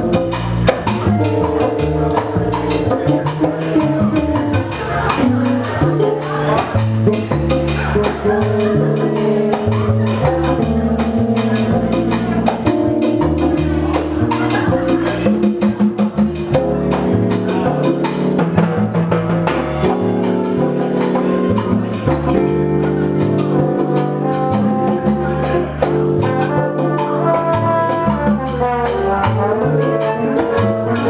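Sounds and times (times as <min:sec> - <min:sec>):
congas: 0:00.0 - 0:31.0
electric keyboard: 0:00.0 - 0:31.0
plucked double bass: 0:00.0 - 0:31.0
trombone: 0:00.0 - 0:31.0.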